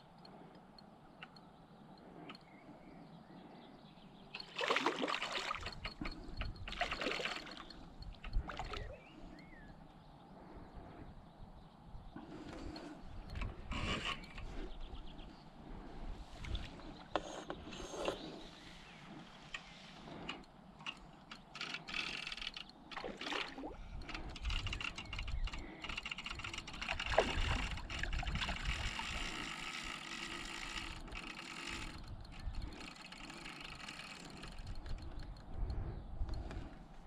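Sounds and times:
fishing reel whirring: 0:04.4 - 0:09.0, 0:12.7 - 0:14.7, 0:20.1 - 0:35.8
fishing tackle clicks and knocks: 0:05.2 - 0:09.0.

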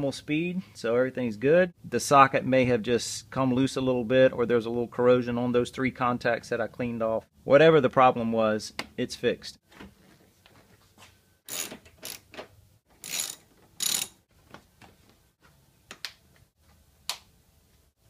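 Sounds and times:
ratchet wrench clicking: 0:11.5 - 0:12.3, 0:13.0 - 0:14.2.

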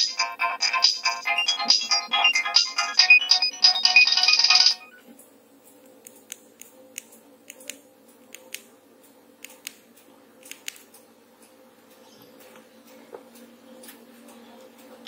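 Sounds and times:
phone ringtone: 0:00.0 - 0:05.0.

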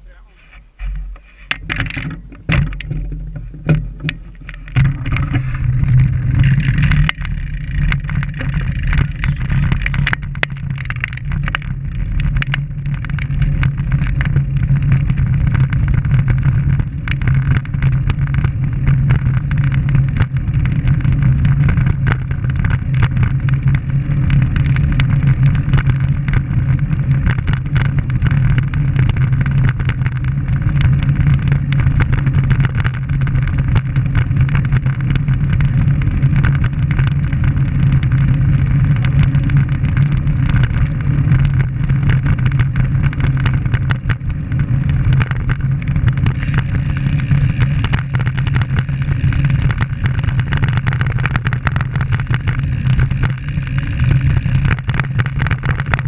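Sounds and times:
road and tyre noise: 0:00.0 - 0:56.0
wind rushing over microphone: 0:00.0 - 0:56.0
clicks and knocks: 0:00.8 - 0:13.4.

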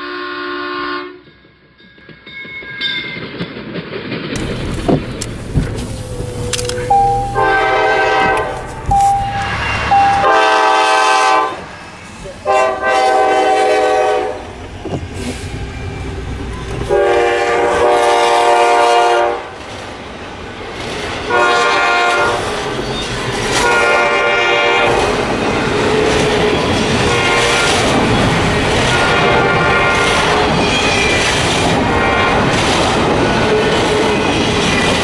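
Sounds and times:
locomotive air horn blasts: 0:00.0 - 0:01.2, 0:04.4 - 0:11.7, 0:12.4 - 0:14.4, 0:16.9 - 0:19.5, 0:21.3 - 0:22.5, 0:23.6 - 0:25.2, 0:28.9 - 0:30.4
freight cars rumbling and clattering: 0:03.2 - 0:10.4, 0:14.4 - 0:17.8, 0:24.7 - 0:35.0.

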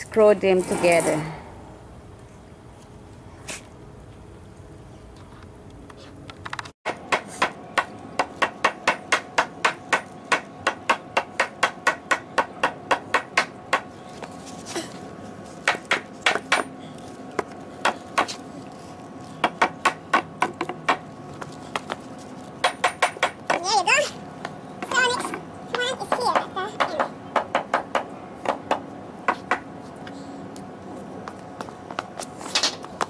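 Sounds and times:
hammer striking wood: 0:06.9 - 0:13.9, 0:15.6 - 0:16.7, 0:22.6 - 0:23.6, 0:26.1 - 0:29.6.

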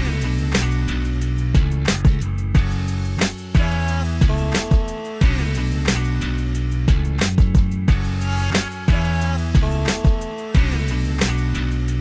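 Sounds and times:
music with steady drum beat: 0:00.0 - 0:12.0.

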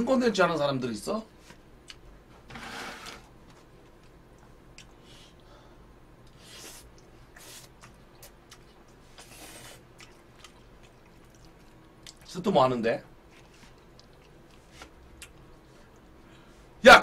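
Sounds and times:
chewing: 0:06.8 - 0:12.3, 0:13.3 - 0:16.0.

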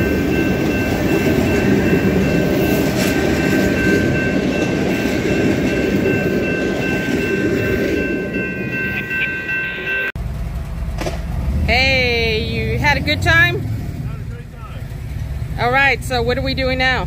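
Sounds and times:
train wheels clattering on rail: 0:00.0 - 0:08.1.

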